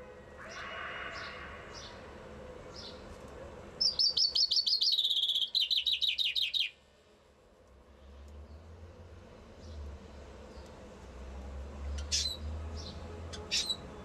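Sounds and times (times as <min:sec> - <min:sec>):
chaffinch singing: 0:03.8 - 0:06.8.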